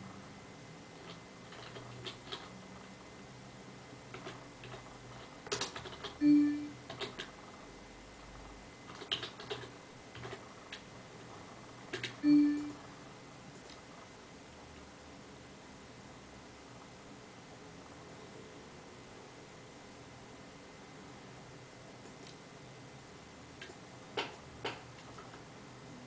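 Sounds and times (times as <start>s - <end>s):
short steady tones: 6.2s - 6.8s, 12.2s - 12.8s
keyboard key clicks: 8.9s - 10.8s.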